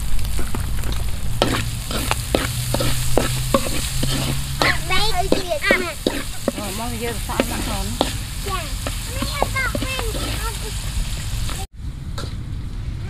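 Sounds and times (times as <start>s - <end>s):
food sizzling in a pan: 0.0s - 11.7s
spatula scraping and clacking on pan: 1.4s - 11.6s.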